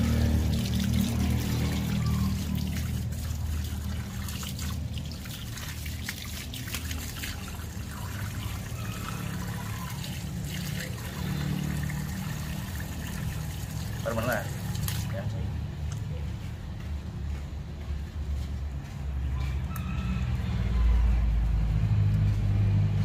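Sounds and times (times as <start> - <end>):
hose water splashing: 0.0 - 16.0.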